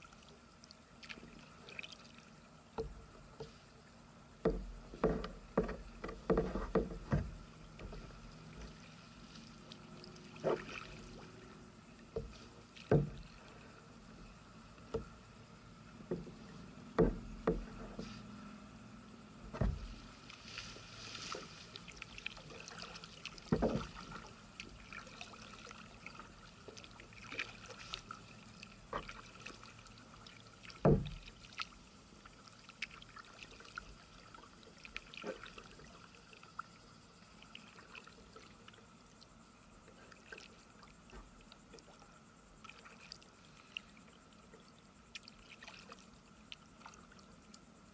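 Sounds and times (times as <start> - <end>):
paddle splashing water: 0.0 - 3.7, 4.4 - 13.9, 19.5 - 47.6
dull knocks: 4.4 - 8.7, 12.2 - 13.2, 16.1 - 18.1, 19.4 - 20.0, 23.5 - 24.0, 30.8 - 31.2.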